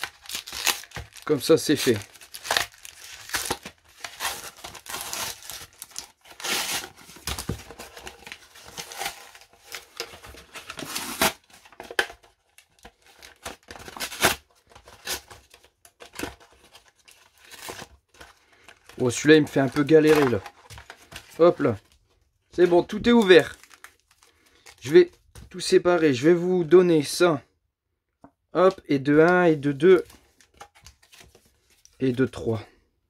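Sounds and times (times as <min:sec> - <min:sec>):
packaging tearing and crumpling: 0:00.0 - 0:21.4, 0:23.0 - 0:24.8.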